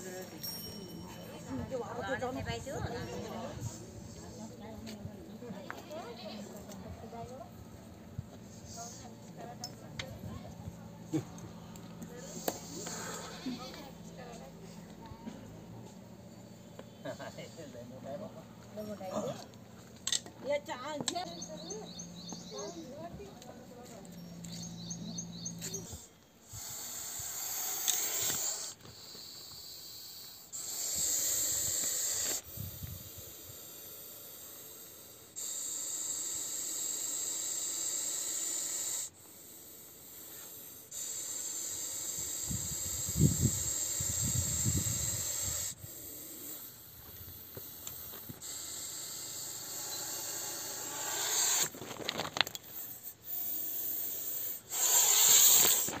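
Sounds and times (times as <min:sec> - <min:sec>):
snake hissing loudly: 0:12.2 - 0:13.6, 0:25.7 - 0:51.8, 0:52.6 - 0:56.0.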